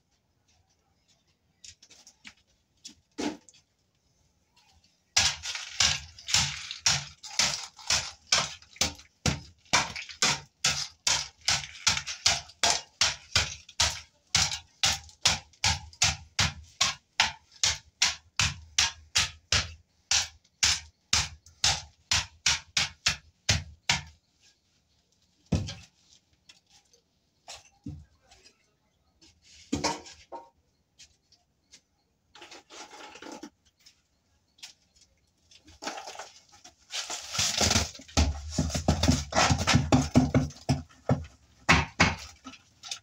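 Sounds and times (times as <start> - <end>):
hoe scraping through rubble: 32.3 - 33.6, 35.6 - 40.9.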